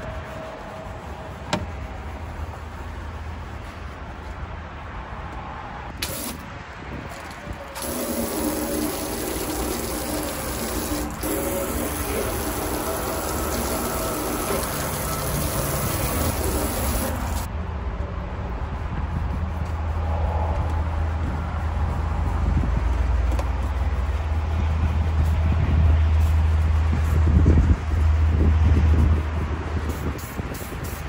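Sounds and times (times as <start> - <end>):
hose water spraying on metal sign: 6.0 - 6.5, 7.7 - 17.5, 29.8 - 31.0
scrub pad scrubbing sign: 7.8 - 17.5.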